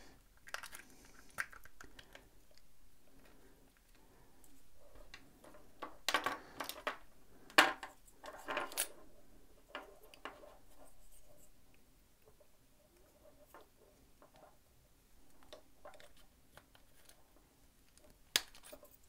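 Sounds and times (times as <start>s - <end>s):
small plastic parts clicking: 0.4s - 4.0s.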